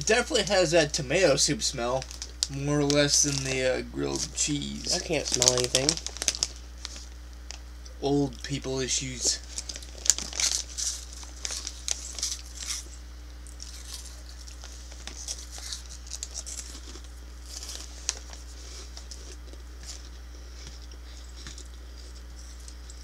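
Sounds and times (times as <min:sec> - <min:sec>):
crunchy snacks being chewed: 0:01.9 - 0:07.6, 0:09.4 - 0:23.0
plastic bag crinkling: 0:01.9 - 0:07.6, 0:09.3 - 0:12.9, 0:13.5 - 0:20.1.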